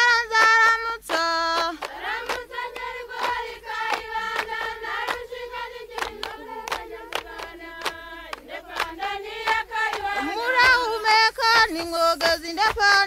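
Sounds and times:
group singing a long held note: 0.0s - 12.7s
steady handclaps: 0.0s - 13.0s.

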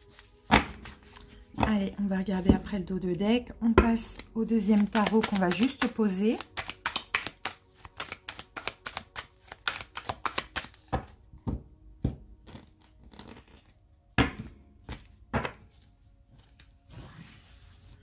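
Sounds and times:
cards being shuffled: 0.0s - 1.7s, 4.0s - 11.2s, 12.4s - 13.8s.

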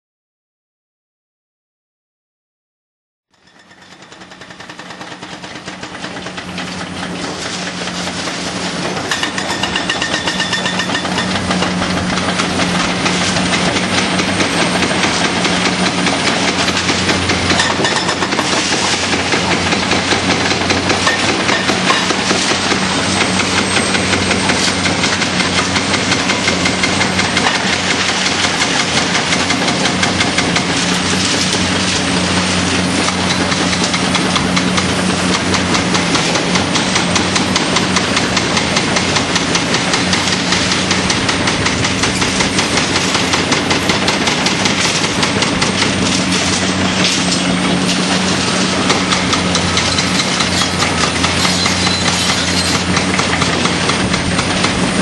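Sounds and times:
hydraulic breaker hammering concrete: 3.4s - 55.0s
diesel engine running: 3.9s - 55.0s.

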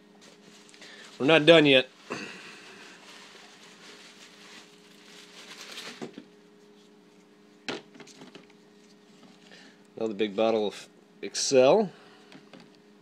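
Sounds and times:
packaging rustling: 0.2s - 6.4s.

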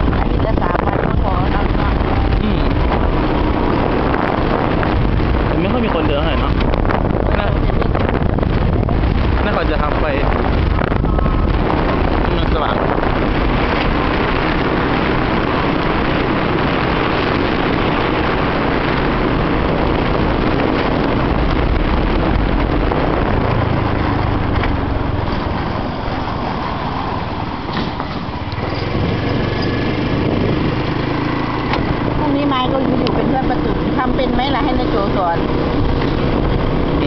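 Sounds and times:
wind over microphone: 0.0s - 37.0s
small motorcycle engine running: 10.7s - 37.0s.

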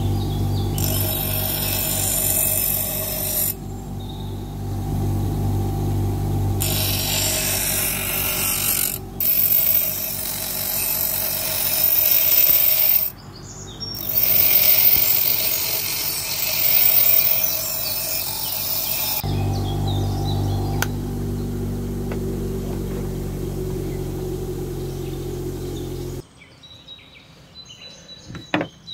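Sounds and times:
bench grinder motor running: 0.0s - 13.2s, 14.0s - 26.2s
grinding hiss of steel: 0.8s - 3.6s, 6.6s - 13.1s, 14.0s - 19.3s.

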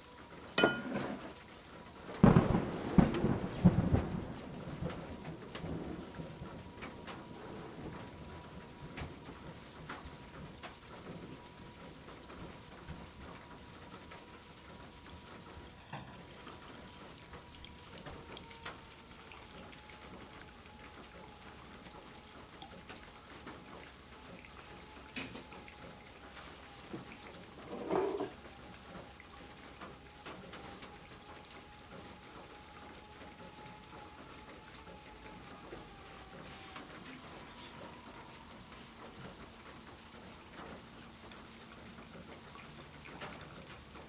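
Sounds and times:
thin steady tone: 0.6s - 1.2s
coffee dripping: 0.6s - 1.3s.

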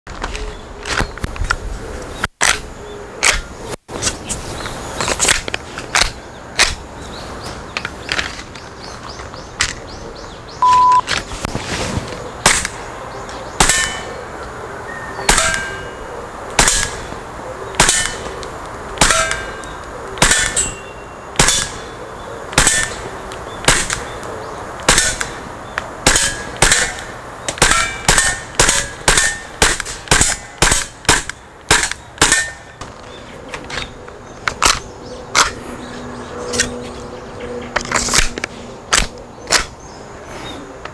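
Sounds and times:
airsoft pistol shots: 15.3s - 15.8s, 16.6s - 17.0s, 17.8s - 18.2s, 19.0s - 19.5s, 20.2s - 20.7s, 21.4s - 21.8s, 23.6s - 24.0s, 26.0s - 32.6s.

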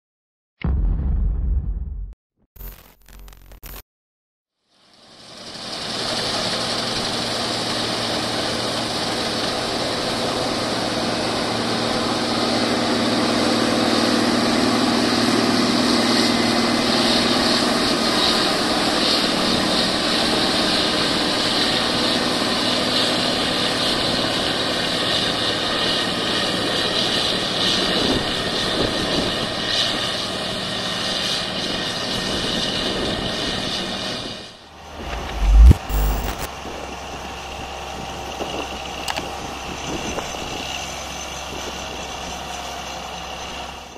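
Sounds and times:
combine harvester drone: 34.7s - 43.9s.

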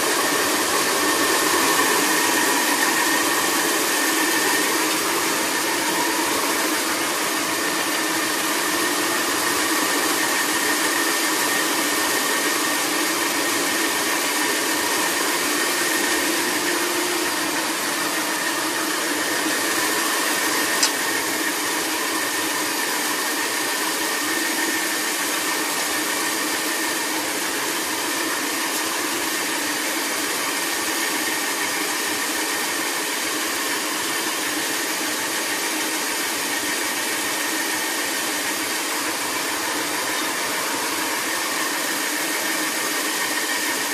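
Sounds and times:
faint machine whine: 0.0s - 43.9s
milling machine hissing grind: 0.0s - 43.9s.

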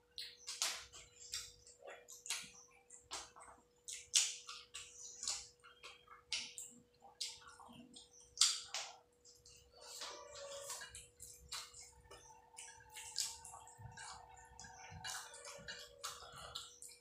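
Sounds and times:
wet chewing and lip-smacking: 0.0s - 17.0s.

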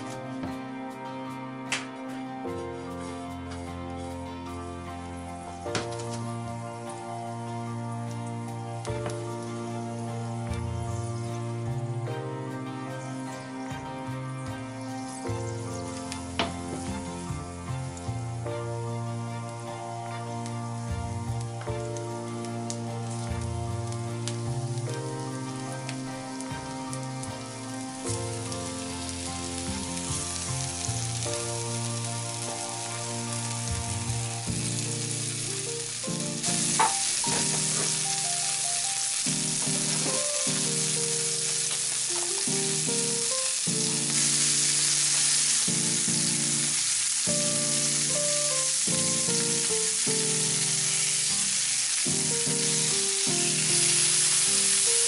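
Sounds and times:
background music: 0.0s - 55.0s
fish fillets sizzling in a pan: 2.5s - 55.0s.

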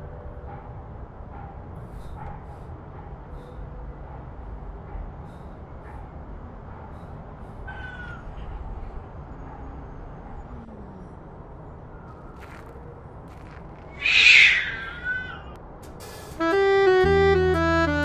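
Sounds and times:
outdoor background noise: 0.0s - 18.0s
harsh animal call: 13.9s - 15.6s.

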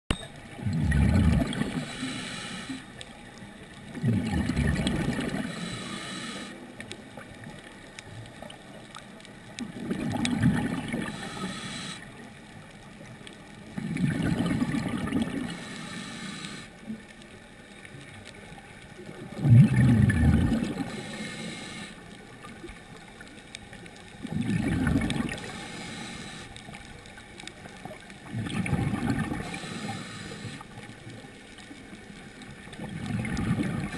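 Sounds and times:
underwater bubbles gurgling: 0.1s - 33.9s
steady low hiss: 1.4s - 4.0s, 5.2s - 9.6s, 10.7s - 13.8s, 15.2s - 19.4s, 20.5s - 24.3s, 25.1s - 28.3s, 29.2s - 32.8s.

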